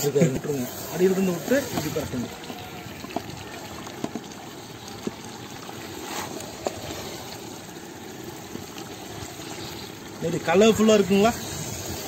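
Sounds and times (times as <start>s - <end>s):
spatula stirring wet food in pot: 0.0s - 10.2s.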